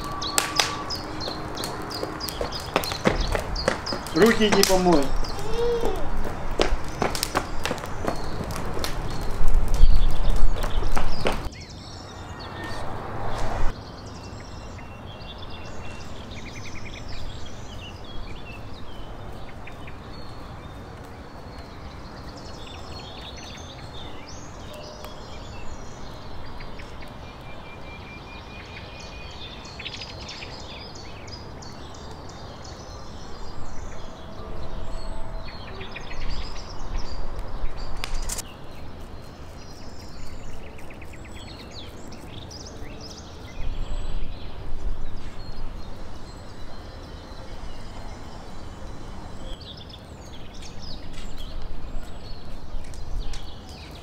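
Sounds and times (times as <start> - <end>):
low rumble: 0.0 - 4.1, 7.6 - 13.8
small birds chirping: 0.0 - 54.0.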